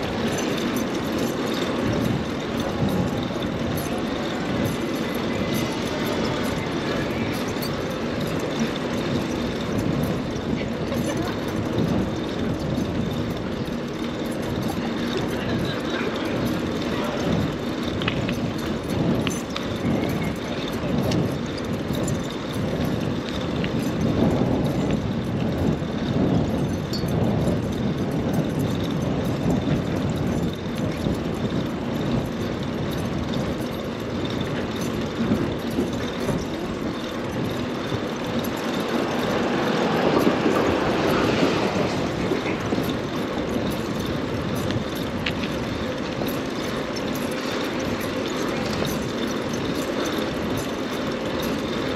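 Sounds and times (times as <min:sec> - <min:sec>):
tyre noise: 0:00.0 - 0:51.9
car engines: 0:29.7 - 0:51.9.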